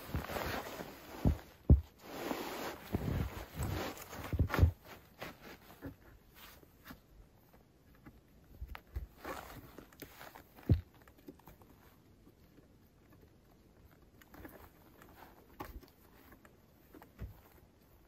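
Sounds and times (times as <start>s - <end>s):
canvas tarp rustling: 0.0s - 5.6s
dull thumps: 0.0s - 6.2s, 10.5s - 11.2s, 16.9s - 17.6s.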